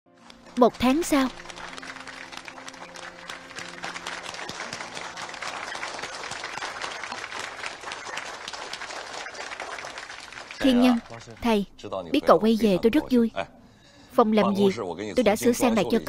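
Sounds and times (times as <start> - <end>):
people applauding: 0.2 - 11.4.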